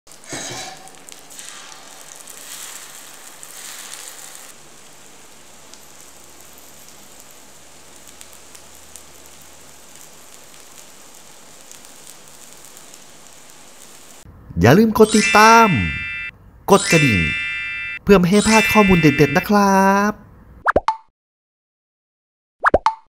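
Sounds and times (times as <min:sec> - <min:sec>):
oil sizzling and crackling: 0:00.1 - 0:14.3.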